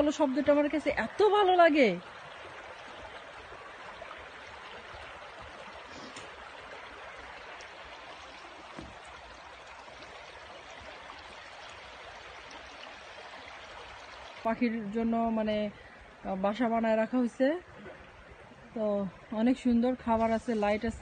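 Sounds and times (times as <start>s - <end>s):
stream babbling over rocks: 0.0s - 21.0s
faint tap: 8.7s - 9.0s.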